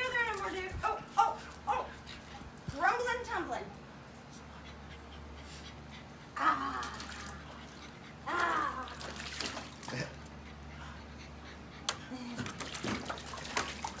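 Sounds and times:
water splashing in a pool: 6.4 - 10.3, 12.3 - 14.0.

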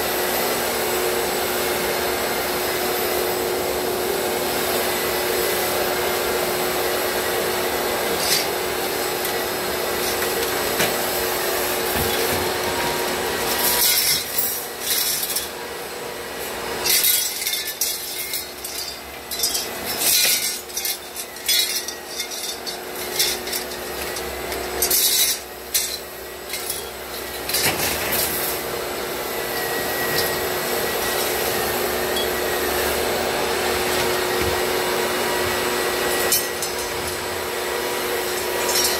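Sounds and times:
sanding head scraping ceiling: 0.0 - 17.2, 28.0 - 38.8
shop vacuum running: 0.0 - 38.9.

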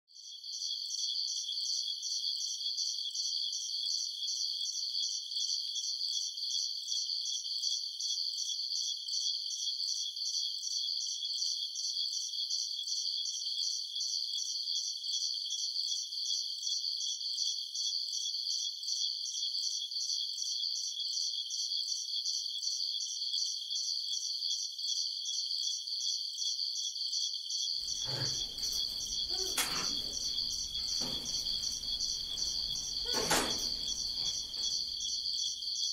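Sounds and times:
high-pitched insect chirping: 0.2 - 35.9.

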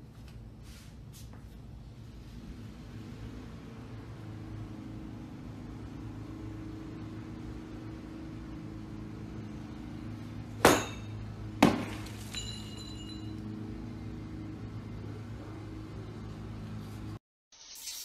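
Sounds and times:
ringing clink: 10.7 - 11.2, 12.2 - 13.5.

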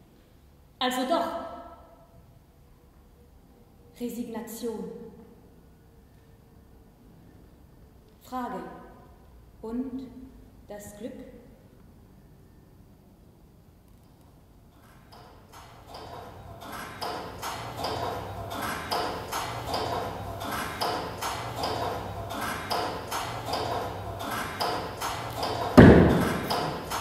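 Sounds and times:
heavy thump: 25.8 - 26.8.

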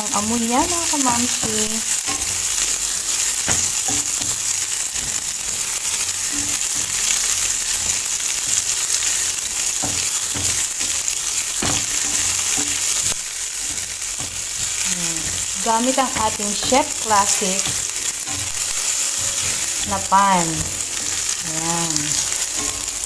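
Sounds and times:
onion sizzling in oil: 0.0 - 23.0
spatula scraping pan: 0.2 - 23.0.

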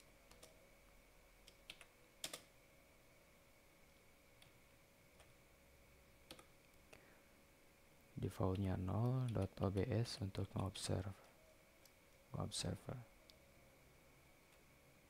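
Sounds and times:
faint steady hum: 0.0 - 15.0
computer keyboard keystrokes: 0.3 - 0.6, 1.4 - 2.5, 6.3 - 6.5, 9.0 - 9.6.

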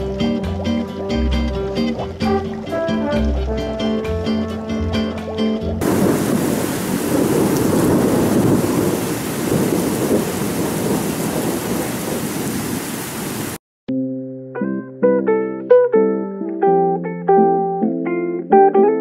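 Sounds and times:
music: 0.0 - 5.8, 13.9 - 19.0
wind and heavy rain: 5.8 - 13.6.

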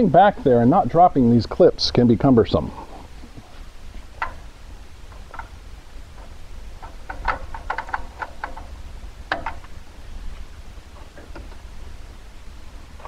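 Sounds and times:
low steady hum: 0.0 - 13.0
metal emblem clicking on grille: 5.1 - 9.8.

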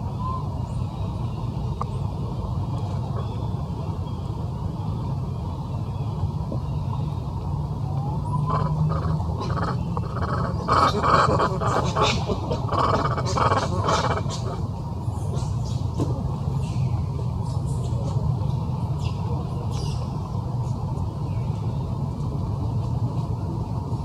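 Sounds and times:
steady low rumble: 0.0 - 24.0
rapid squeaky animal calls: 8.3 - 14.6.

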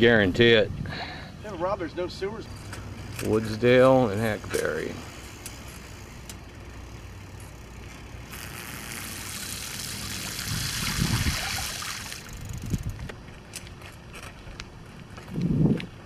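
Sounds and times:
bicycle tyres splashing through water: 8.2 - 12.8.

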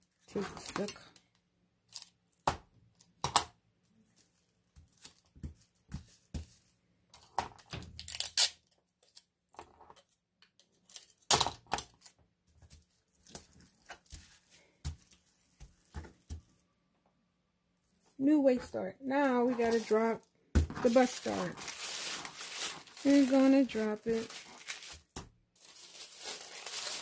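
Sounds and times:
sticky tape ripping: 8.0 - 8.6
paper rustling: 19.2 - 27.0.

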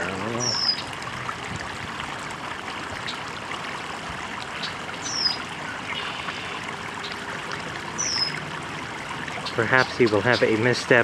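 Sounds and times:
water trickling over rocks: 0.0 - 11.0
bird chirp: 0.3 - 0.9, 4.6 - 7.2, 8.0 - 8.4.

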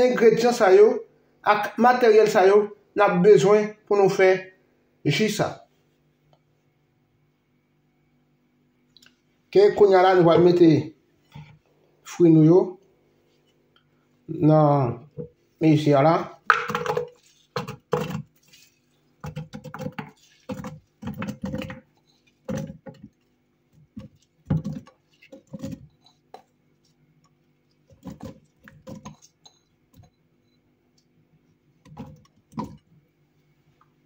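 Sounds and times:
fruit pieces dropping into plastic beaker: 16.4 - 18.3, 31.9 - 32.8.

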